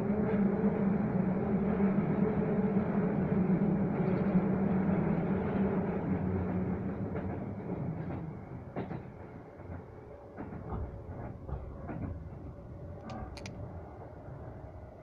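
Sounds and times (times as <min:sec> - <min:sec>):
train hum: 0:00.0 - 0:15.0
train wheels and motors rumbling: 0:05.0 - 0:15.0
rail clicks: 0:06.1 - 0:13.8.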